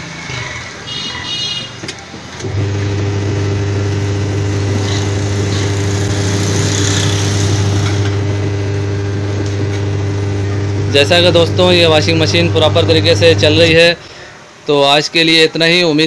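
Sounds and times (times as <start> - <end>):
washing machine motor humming: 2.2 - 14.0.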